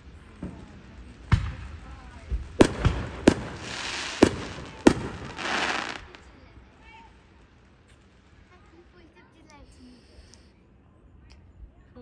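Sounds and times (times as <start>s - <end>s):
fireworks bangs: 0.0s - 9.0s
crackling hiss of fireworks: 0.0s - 12.0s.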